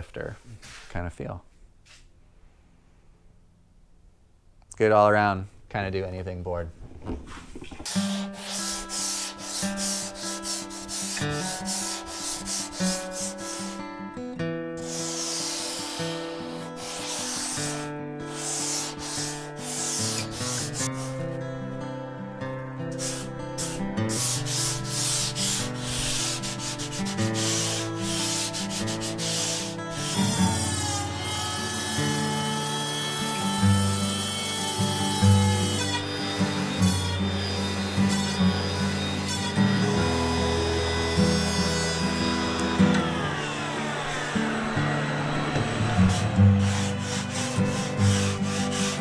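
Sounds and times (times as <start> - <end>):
sanding hiss on surfboard: 7.9 - 13.9, 14.8 - 21.3, 22.9 - 43.6, 46.1 - 49.0
background music sustained notes: 15.6 - 49.0.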